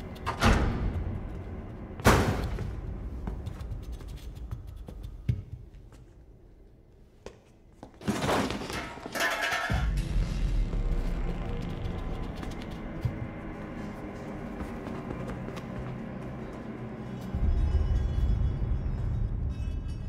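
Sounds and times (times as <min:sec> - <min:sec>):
low rumble: 0:09.7 - 0:20.0.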